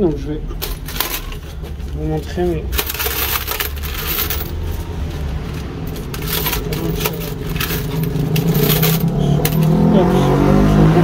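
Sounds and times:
vehicle engine running: 0.0 - 11.0
banknotes rustling: 0.5 - 9.8
coins clicking in metal tray: 0.6 - 1.9, 2.7 - 4.8, 5.4 - 9.9.

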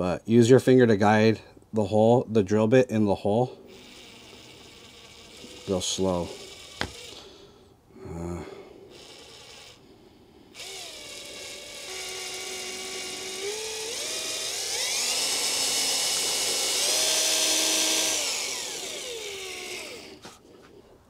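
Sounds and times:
electric drill whining: 3.6 - 7.5, 8.8 - 20.6.

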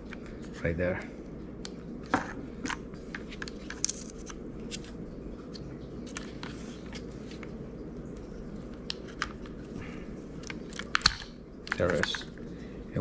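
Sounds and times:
plastic parts clicking and rattling: 10.4 - 12.4.

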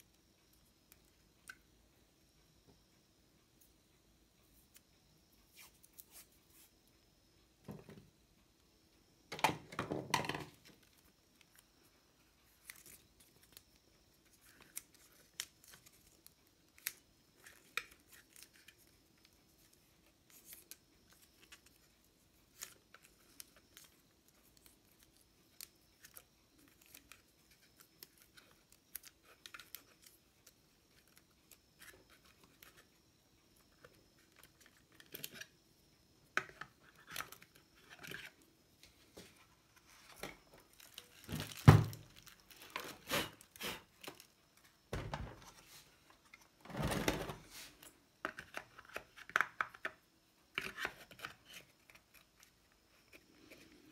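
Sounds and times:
hands handling wires and tape: 12.5 - 32.9, 33.5 - 35.5, 36.4 - 46.5.

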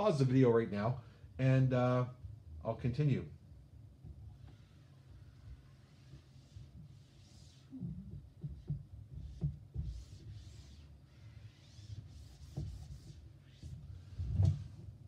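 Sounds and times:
eraser swishing on whiteboard: 4.4 - 14.8
dull thumps on board: 8.1 - 10.0.

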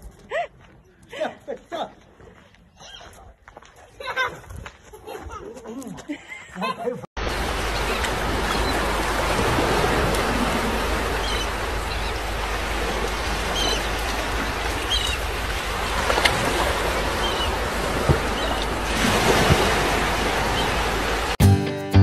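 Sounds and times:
water rushing over pool edge: 7.2 - 21.4.

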